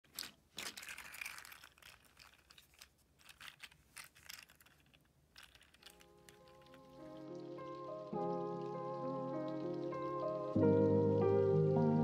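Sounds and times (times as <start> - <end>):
small plastic clicks and rattles: 0.0 - 7.1.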